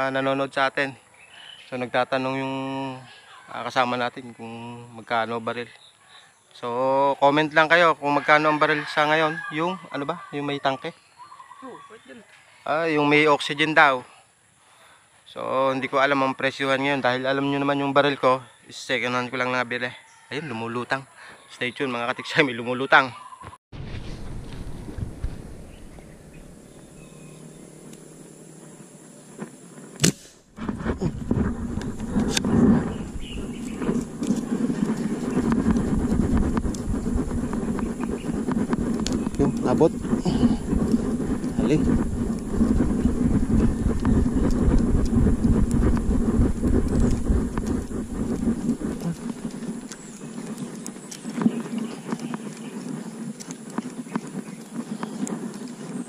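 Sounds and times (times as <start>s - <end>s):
airgun shot crack: 23.8s - 27.0s, 30.0s - 30.5s
heavy low rumble: 23.8s - 51.0s.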